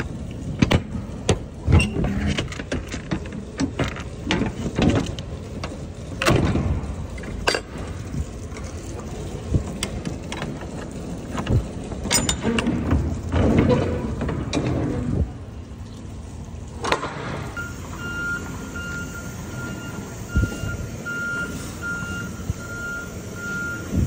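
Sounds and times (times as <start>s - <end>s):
metal door handles clicking and clanking: 11.4s - 15.0s.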